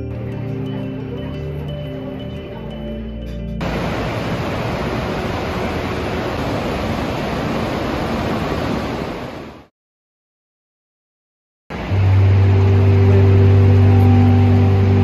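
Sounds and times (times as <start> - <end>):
fast-flowing river water: 3.6 - 9.6, 11.7 - 15.0.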